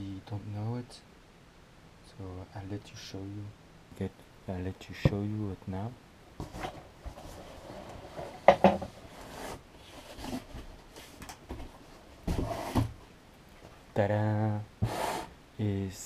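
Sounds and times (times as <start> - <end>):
cardboard rustling and scraping: 6.4 - 13.0.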